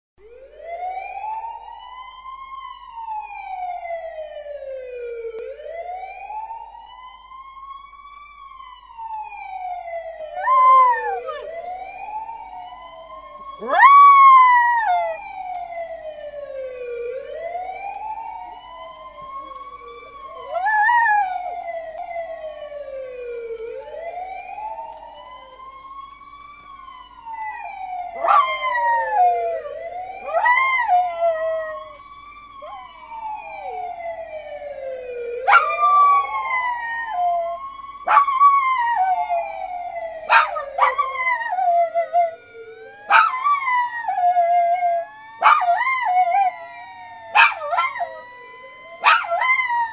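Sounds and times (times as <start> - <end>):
siren wailing: 0.2 - 49.9
small dog howling: 10.2 - 12.0, 13.4 - 15.7, 19.0 - 22.5, 27.4 - 32.0, 32.6 - 34.1, 35.4 - 46.7, 47.3 - 49.9.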